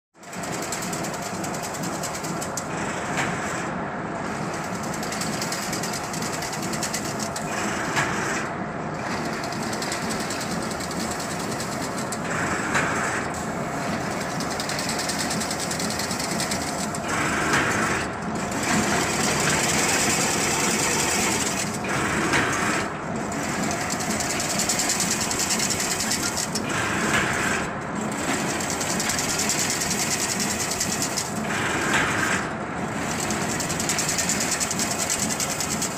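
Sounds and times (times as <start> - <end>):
fence making machine clattering: 0.3 - 2.7, 4.5 - 7.7, 9.1 - 13.0, 13.8 - 32.4, 33.0 - 35.9.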